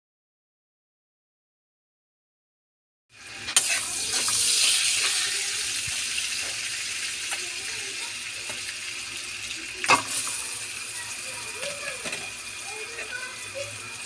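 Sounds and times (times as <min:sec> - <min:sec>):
butter sizzling in a pan: 0:03.1 - 0:14.0.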